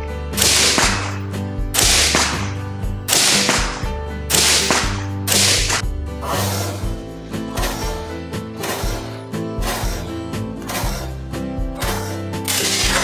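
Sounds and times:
background music with bass: 0.0 - 13.0
suppressed rifle shots: 0.4 - 5.8.

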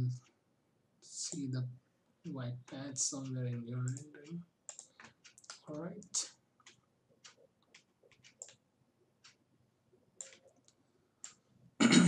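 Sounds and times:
mouse and keyboard clicks: 4.7 - 8.6, 10.2 - 11.4.

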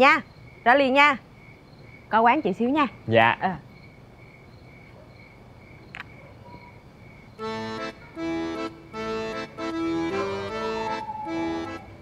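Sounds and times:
faint pulsing chirr: 0.0 - 12.0
reedy chords music: 7.4 - 11.8.

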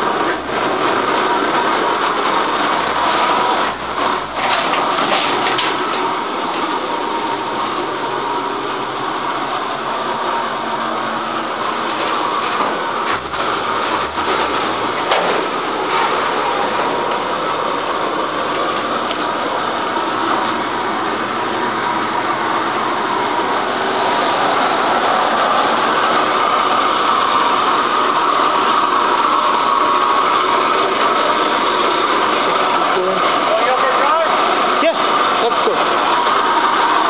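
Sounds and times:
engine running steadily: 0.0 - 37.0.

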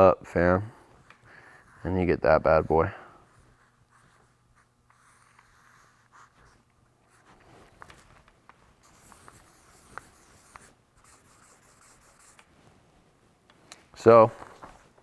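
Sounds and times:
marker pen scratching on paper: 1.0 - 12.5.

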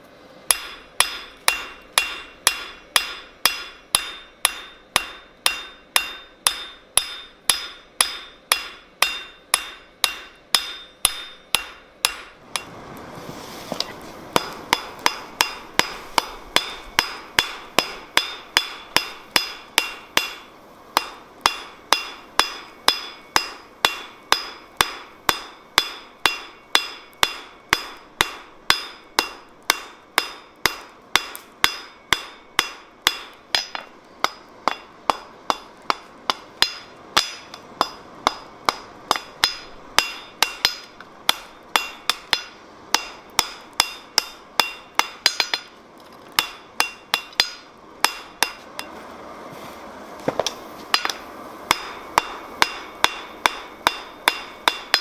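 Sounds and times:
hammer ringing on anvil: 0.5 - 12.7, 14.4 - 45.7, 46.4 - 48.6, 50.9 - 55.0
soft rushing noise: 12.2 - 18.0, 48.6 - 52.6.

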